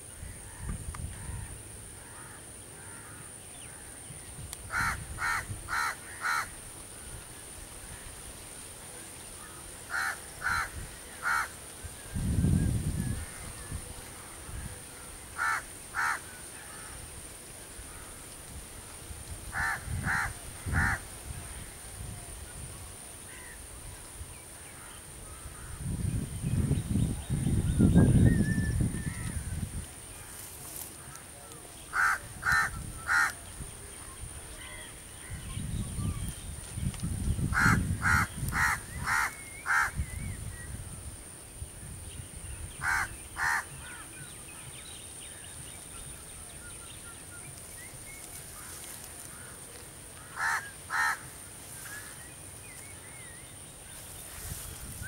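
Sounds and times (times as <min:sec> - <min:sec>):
crow cawing: 0:01.2 - 0:03.2, 0:04.7 - 0:06.6, 0:09.9 - 0:11.5, 0:15.4 - 0:17.0, 0:19.5 - 0:21.0, 0:31.9 - 0:33.4, 0:37.5 - 0:40.0, 0:42.8 - 0:44.1, 0:50.2 - 0:51.3.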